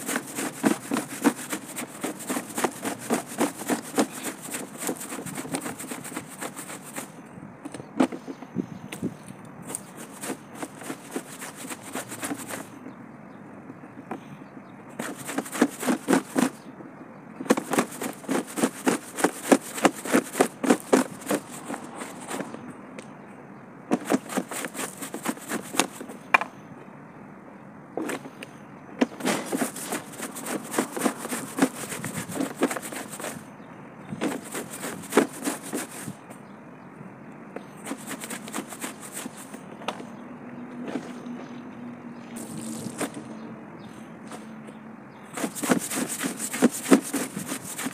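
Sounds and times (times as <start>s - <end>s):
broom scrubbing wet jeans: 0.0s - 7.1s, 9.7s - 12.7s, 15.0s - 16.6s, 17.5s - 22.6s, 23.9s - 26.0s, 29.0s - 33.4s, 34.2s - 36.2s, 37.8s - 39.6s, 42.4s - 43.1s, 45.3s - 47.9s.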